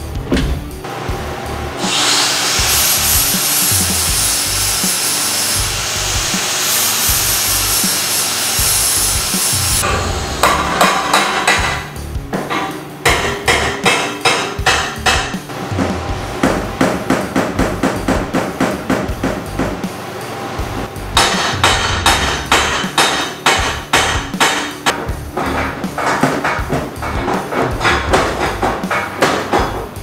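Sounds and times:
angle grinder cutting steel: 1.8s - 10.7s.

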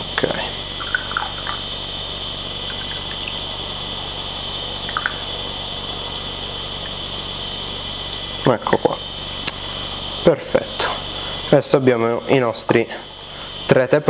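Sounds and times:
steady high hiss: 0.0s - 14.0s
tea trickling into a glass cup: 0.8s - 1.6s, 2.7s - 3.4s.

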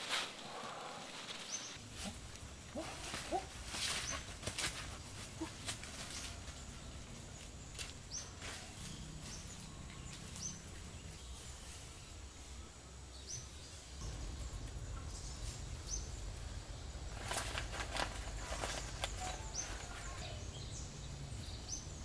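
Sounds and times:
small birds chirping: 0.3s - 22.0s
birds fluttering and flapping: 17.0s - 20.4s.

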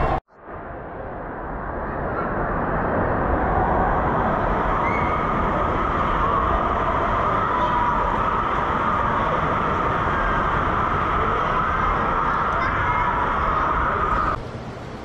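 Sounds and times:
crowd noise: 0.0s - 15.0s
running water: 2.8s - 15.0s.

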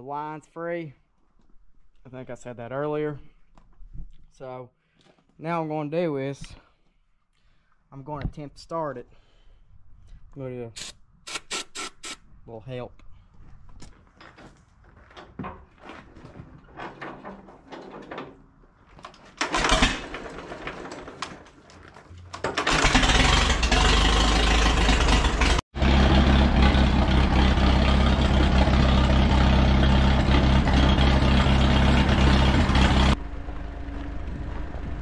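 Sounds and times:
tractor engine starting and running: 15.0s - 35.0s.

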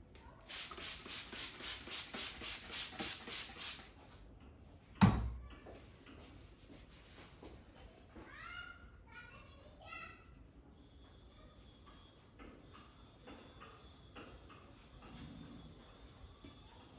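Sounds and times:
spray bottle spritzing: 0.5s - 4.0s.

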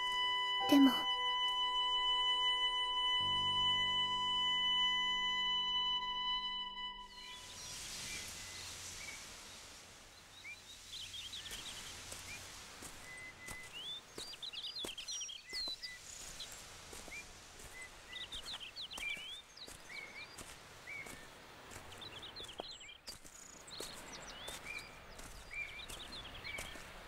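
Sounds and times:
faint steady hiss: 0.0s - 27.0s
small birds chirping: 7.0s - 27.0s.

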